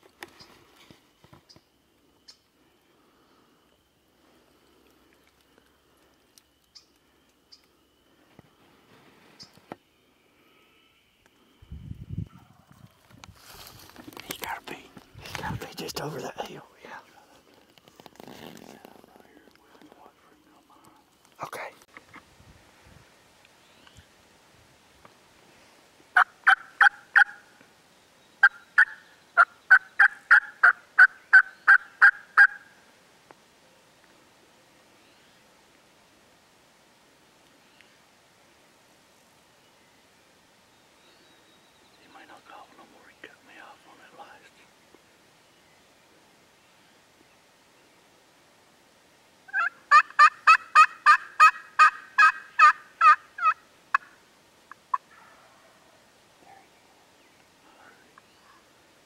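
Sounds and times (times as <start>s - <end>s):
turkey yelping: 26.2s - 27.4s, 28.4s - 32.7s, 49.5s - 54.1s.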